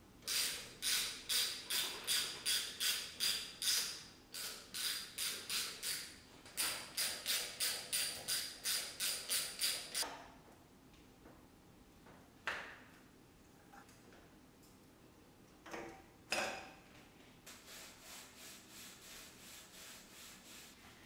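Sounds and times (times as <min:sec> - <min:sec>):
socket ratchet clicking: 0:00.3 - 0:10.0.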